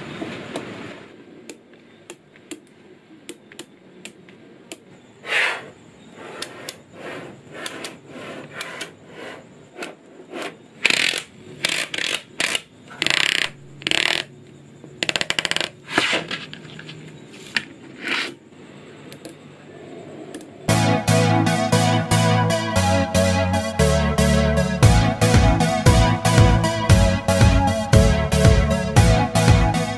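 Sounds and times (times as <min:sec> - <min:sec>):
magnetic balls clicking: 0:10.8 - 0:14.4, 0:15.0 - 0:15.8.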